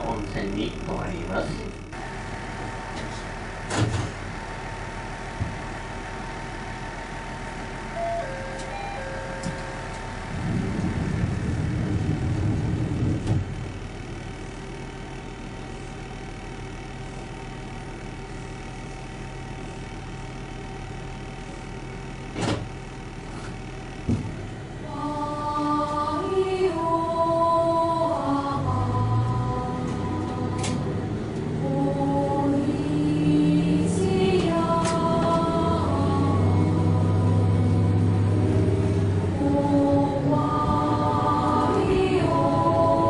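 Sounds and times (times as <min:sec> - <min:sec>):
diesel engine idling: 0:00.0 - 0:43.0
melody of held notes: 0:08.0 - 0:10.1.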